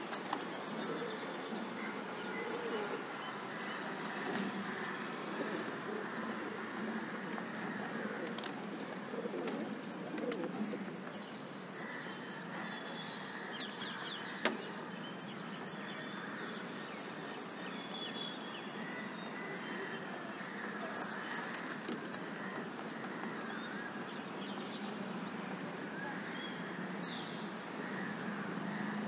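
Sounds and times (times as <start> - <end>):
steady background noise: 0.0 - 29.0
pigeons cooing: 0.4 - 3.3, 5.2 - 11.0.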